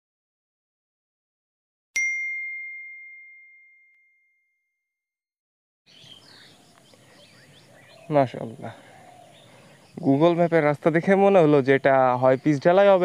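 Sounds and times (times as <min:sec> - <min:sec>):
bell ding: 0:02.0 - 0:04.6
faint bird chirps: 0:05.9 - 0:13.0.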